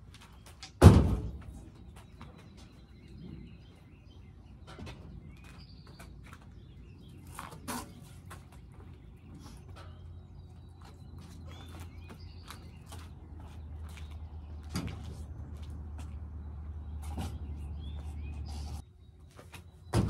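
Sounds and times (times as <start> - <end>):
tire landing thud: 0.8 - 1.6.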